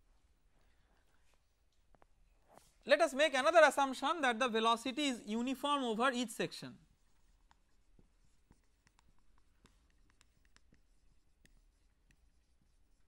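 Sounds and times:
marker pen writing on whiteboard: 6.8 - 13.0.

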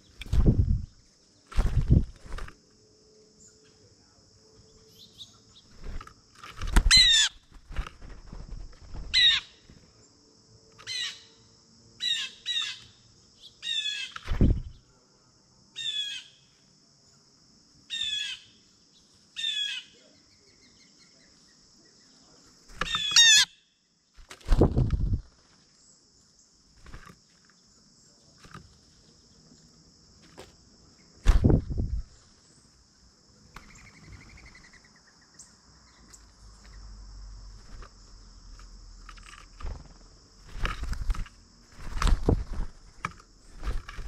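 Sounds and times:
faint insect drone: 0.0 - 44.0
wingbeats and thumps on feeder: 1.5 - 2.6, 5.7 - 9.9, 14.2 - 14.8, 22.7 - 23.4, 24.2 - 25.5, 26.8 - 27.4, 28.3 - 29.0, 31.2 - 32.1, 37.5 - 44.0
bird calling: 6.8 - 7.6, 9.0 - 9.7, 22.8 - 23.8.

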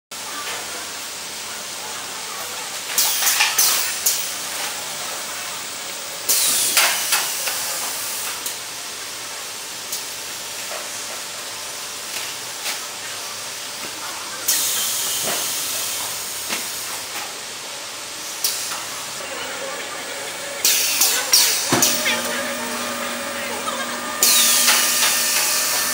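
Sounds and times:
machine running with steady hiss: 0.2 - 25.9
loud bursts of hissing: 6.2 - 8.4, 14.5 - 19.2, 20.2 - 25.9.

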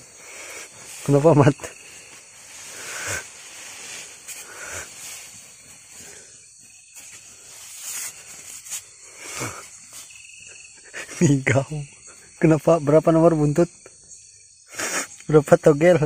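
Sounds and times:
soft rustles: 0.0 - 10.2
night insects hissing: 0.0 - 16.0.

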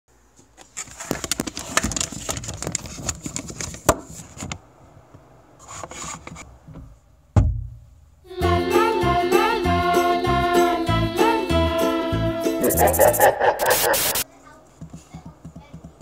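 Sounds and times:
fingers rubbing on phone: 12.6 - 14.2.

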